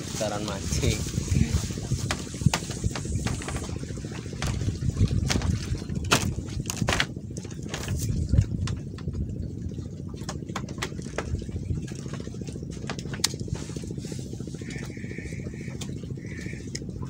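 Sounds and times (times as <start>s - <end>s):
engine running with fast beat: 0.7s - 9.2s, 14.6s - 17.0s.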